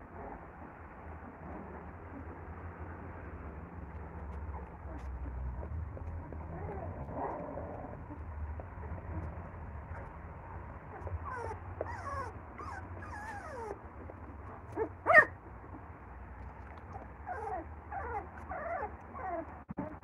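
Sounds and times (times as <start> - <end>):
puppies whimpering and squeaking: 4.2 - 10.2, 10.9 - 15.9, 16.7 - 20.0
puppy yelp: 4.4 - 8.2, 10.9 - 13.8, 14.5 - 15.8, 16.9 - 20.0.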